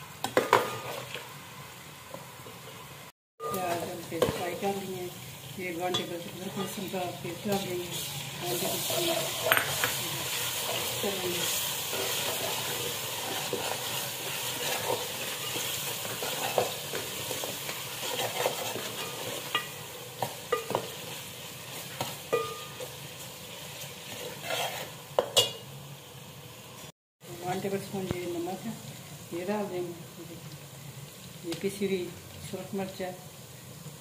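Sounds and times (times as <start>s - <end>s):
onions sizzling in hot oil: 0.0s - 34.0s
metal spoon scraping pot: 8.5s - 10.0s, 18.0s - 19.8s, 24.1s - 25.6s.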